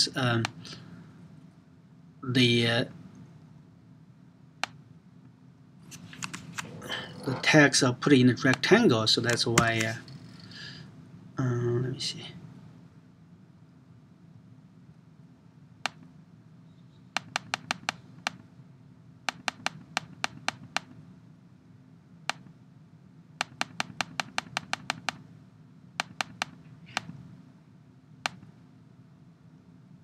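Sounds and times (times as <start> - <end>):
low steady hum: 0.0 - 30.0
mouse and keyboard clicks: 6.2 - 6.8, 17.2 - 18.4, 19.3 - 21.0, 23.4 - 25.2, 26.0 - 27.2, 28.2 - 28.5.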